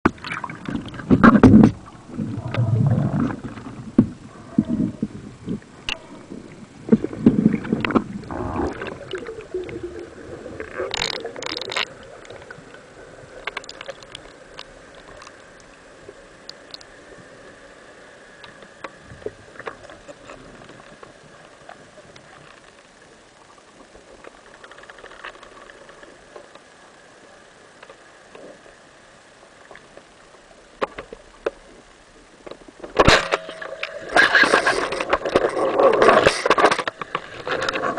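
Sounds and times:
underwater gurgling and bubbling: 0.1s - 16.8s
faint steady hum: 0.1s - 37.9s
underwater clicks: 6.9s - 9.8s, 10.6s - 12.6s, 13.4s - 15.8s.

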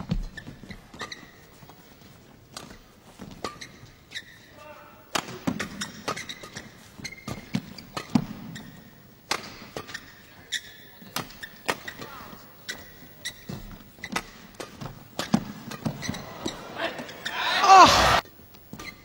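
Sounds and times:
shoes squeaking on court: 0.0s - 4.6s, 5.2s - 17.9s, 18.6s - 19.0s.

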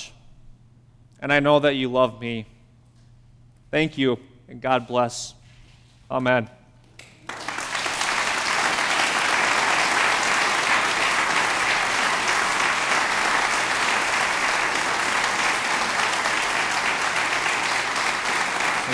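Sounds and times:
congregation applauding: 7.1s - 18.9s.

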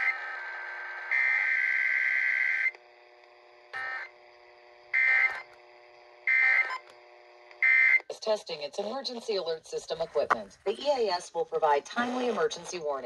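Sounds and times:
harsh digital data screech: 0.0s - 2.7s, 5.0s - 5.5s, 6.3s - 6.8s
faint steady hum: 0.0s - 13.0s.

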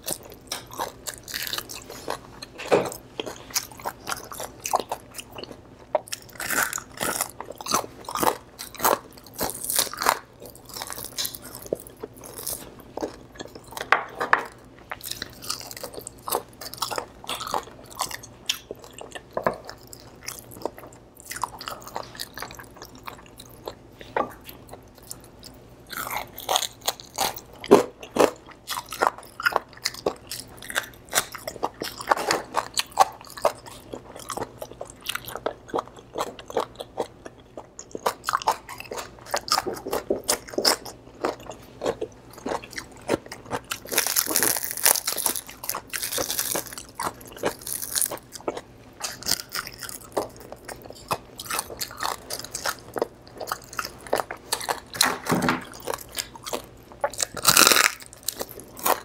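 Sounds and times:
crispy skin crunching: 0.0s - 13.9s, 14.5s - 59.0s
wet chewing: 14.9s - 59.0s.

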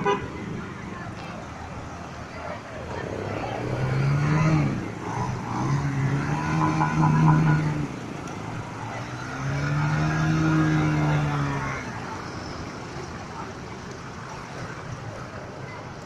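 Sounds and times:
motorcycle engine revving: 3.0s - 12.1s.

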